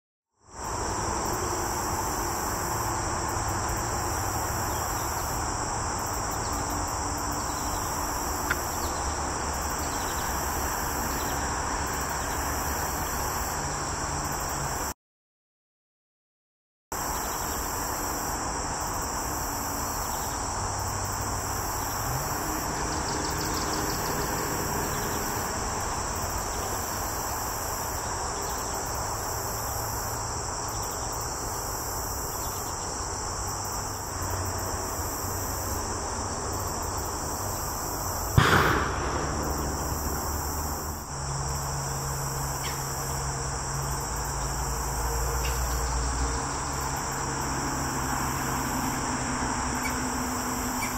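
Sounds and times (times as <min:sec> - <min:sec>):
insect chorus: 0:00.4 - 0:15.0, 0:17.0 - 0:50.9
bird-scare cannon boom: 0:38.4 - 0:41.2.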